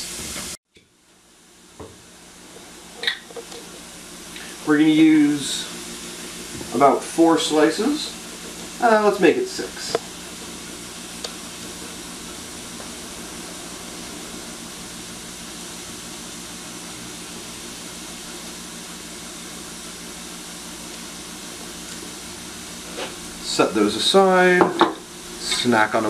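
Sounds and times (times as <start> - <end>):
vegetables sizzling in butter: 1.4 - 26.0
low hum: 9.4 - 17.5.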